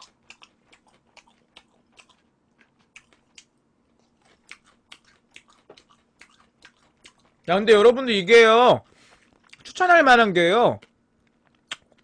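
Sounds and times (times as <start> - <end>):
person chewing chicken: 0.0 - 7.5, 8.8 - 9.7, 10.8 - 12.0.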